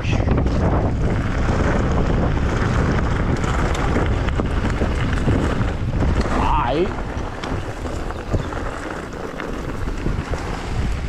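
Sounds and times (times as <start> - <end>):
bike rattling over stones: 0.0 - 11.0
wind buffeting microphone: 0.0 - 11.0
tyres crunching on gravel: 0.5 - 11.0.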